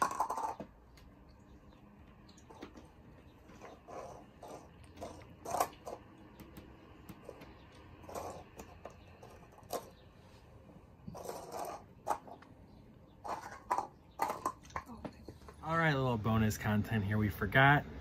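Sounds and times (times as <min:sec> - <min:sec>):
cats eating faint sounds: 0:00.1 - 0:13.4.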